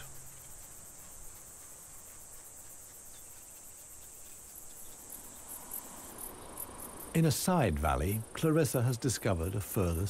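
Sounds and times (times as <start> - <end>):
insects trilling: 0.0 - 10.0.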